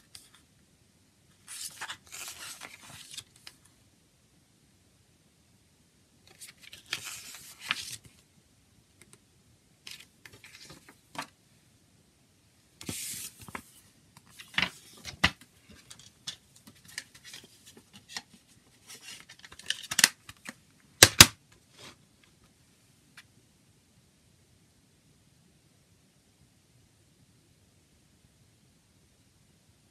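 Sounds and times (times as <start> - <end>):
paper booklet rustling: 1.4 - 3.6, 6.3 - 8.2, 9.9 - 11.4, 12.8 - 20.6.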